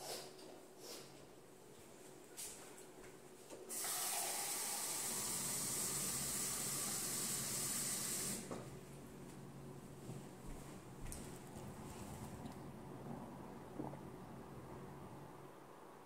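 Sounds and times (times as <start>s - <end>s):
water running into a cup: 3.7s - 8.5s.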